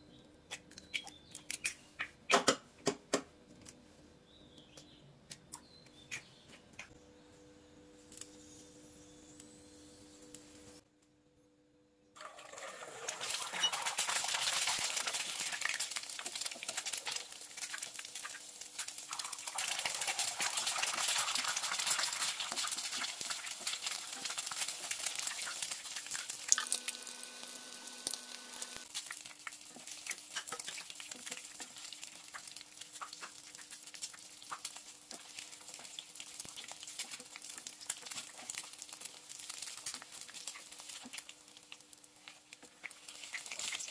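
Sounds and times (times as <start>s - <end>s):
eggs frying in hot oil: 12.2s - 43.9s.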